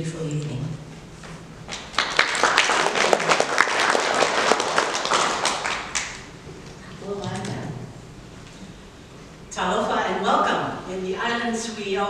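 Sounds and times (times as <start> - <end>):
audience applauding: 1.7 - 6.3.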